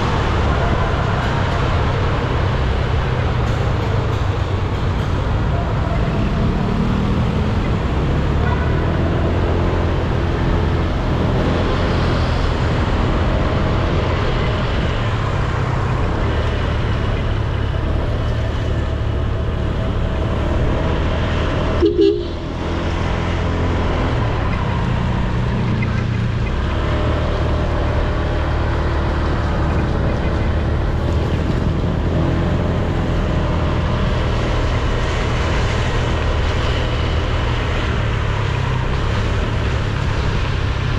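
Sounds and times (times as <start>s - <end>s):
wind and tyre noise on wet road: 0.0s - 40.9s
vehicle horn toot: 21.8s - 22.5s.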